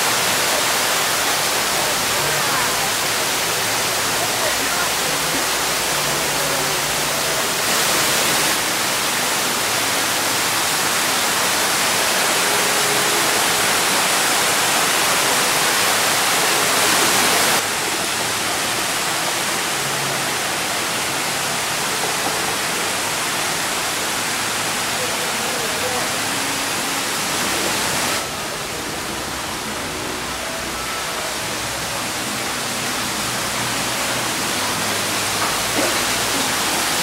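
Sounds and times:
waterfalls cascading over rocks: 0.0s - 37.0s.

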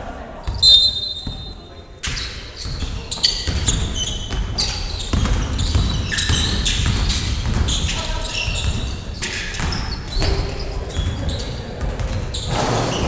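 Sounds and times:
sneakers squeaking: 0.4s - 13.0s
basketball knocking: 2.7s - 11.2s.

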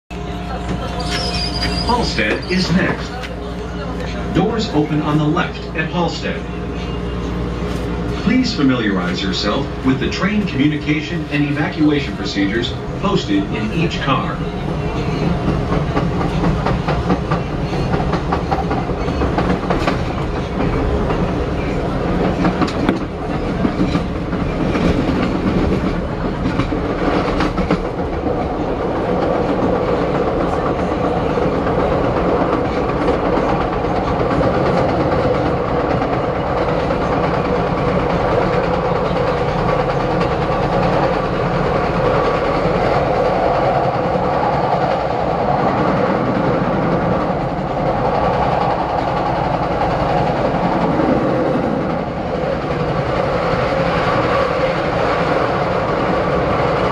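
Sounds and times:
subway car wheel rumble on rails: 0.1s - 56.9s
rail joint clicks: 9.0s - 56.9s.

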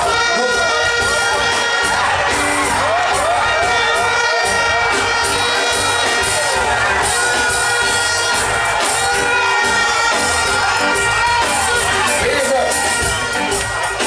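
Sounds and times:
crowd cheering and shouting: 0.0s - 14.0s.

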